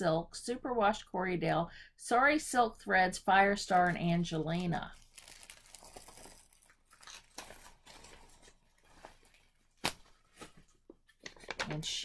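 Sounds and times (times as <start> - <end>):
plastic bag crinkling: 4.4 - 10.4
sharp paper crackle: 4.8 - 10.0.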